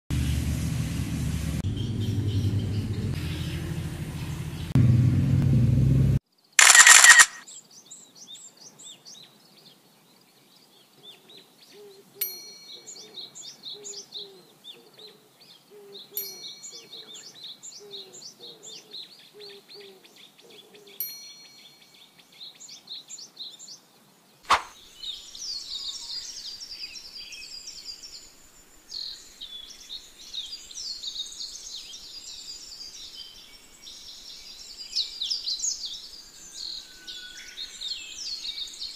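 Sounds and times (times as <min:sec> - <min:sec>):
low rumble: 0:00.1 - 0:06.2
small birds chirping and singing: 0:01.6 - 0:04.8, 0:06.3 - 0:38.9
sharp click: 0:06.6 - 0:07.4, 0:24.5 - 0:24.7
short loud burst: 0:24.5 - 0:24.7.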